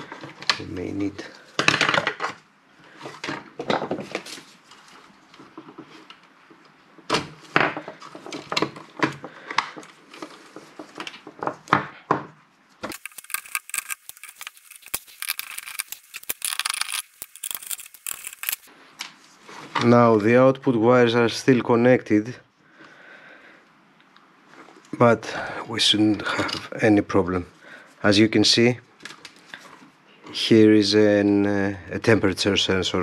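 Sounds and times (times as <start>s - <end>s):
crackly rustling: 12.6s - 20.1s.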